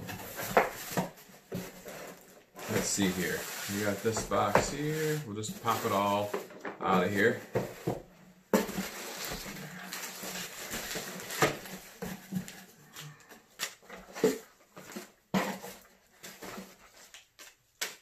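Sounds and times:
packaging rustling: 0:00.0 - 0:18.0.

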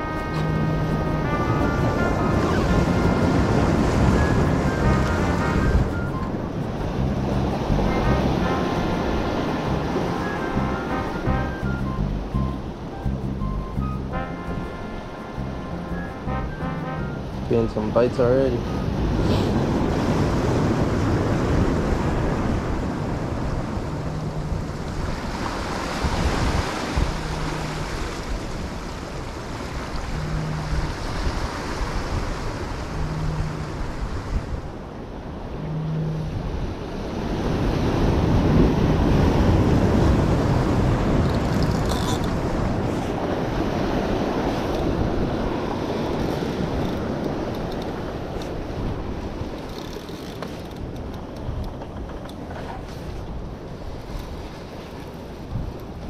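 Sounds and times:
wind buffeting microphone: 0:00.0 - 0:14.6, 0:18.5 - 0:56.0
waves breaking over boulders: 0:17.5 - 0:56.0.

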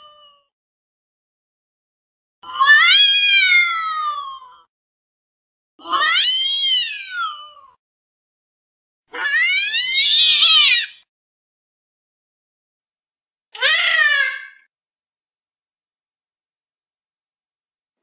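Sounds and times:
cat meowing: 0:02.4 - 0:04.6, 0:05.8 - 0:07.8, 0:09.1 - 0:11.0, 0:13.6 - 0:14.6.

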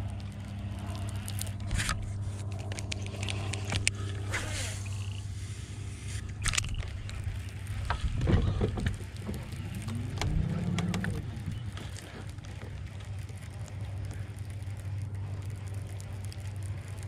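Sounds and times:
electric motor humming: 0:00.0 - 0:17.0
fishing reel clicks and scrapes: 0:01.0 - 0:08.0.

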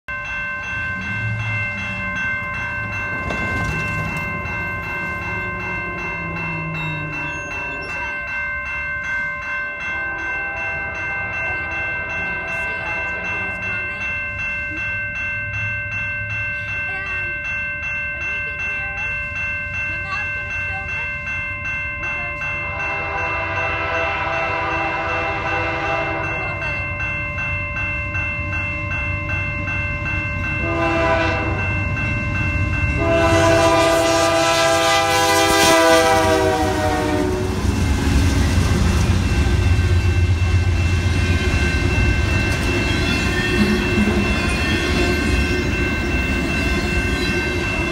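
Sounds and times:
freight train rumbling past: 0:00.1 - 0:47.9
train horn blasts: 0:09.9 - 0:12.2, 0:22.7 - 0:26.5, 0:30.6 - 0:31.7, 0:33.0 - 0:37.7.

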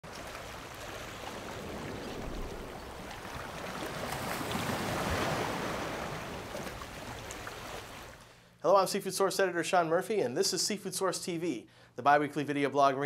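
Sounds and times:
rushing water: 0:00.0 - 0:08.2.

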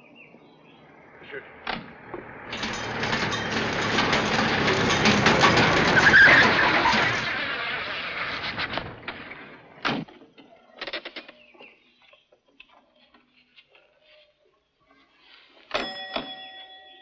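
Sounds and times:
light clattering: 0:01.6 - 0:09.7
clock chime ringing: 0:15.7 - 0:17.0.

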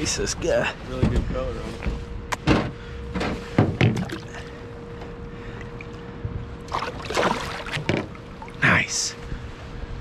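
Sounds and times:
faint steady hum: 0:00.0 - 0:10.0
fish splashing in water: 0:06.7 - 0:08.6.

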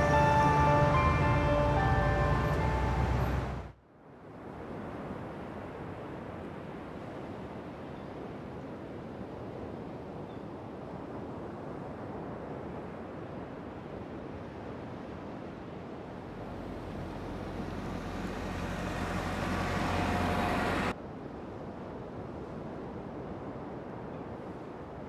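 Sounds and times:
car passing: 0:00.0 - 0:03.7, 0:16.2 - 0:21.0
wind: 0:00.0 - 0:25.0.

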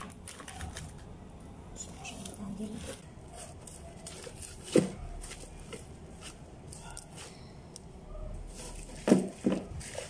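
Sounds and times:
paper cut-outs rustling and clicking: 0:00.0 - 0:01.1.

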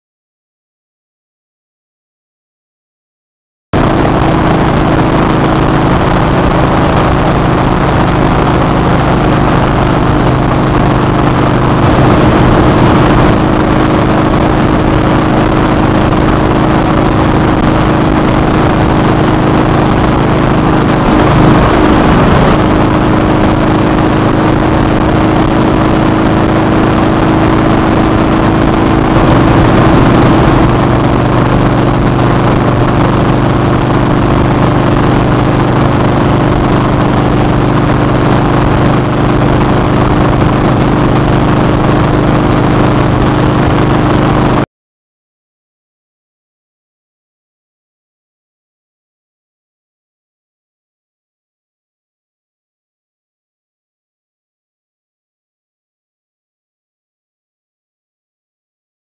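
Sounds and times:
motorcycle engine cruising: 0:03.8 - 0:44.6
wind rushing over microphone: 0:03.8 - 0:44.6.

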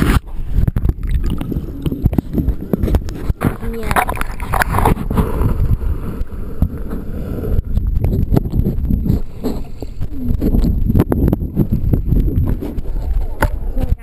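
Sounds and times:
underwater water rumble: 0:00.0 - 0:14.0.

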